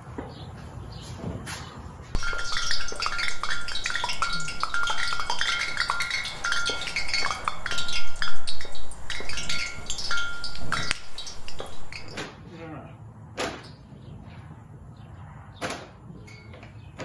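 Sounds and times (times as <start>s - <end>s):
chimes tinkling: 2.2s - 12.2s.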